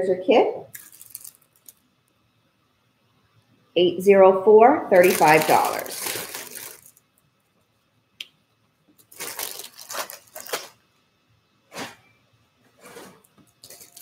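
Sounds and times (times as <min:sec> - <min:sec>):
rustling and shuffling: 0:11.7 - 0:14.0.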